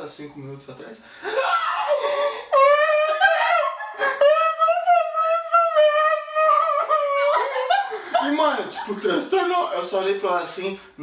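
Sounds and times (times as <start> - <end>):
man mock crying in falsetto: 1.3 - 8.6.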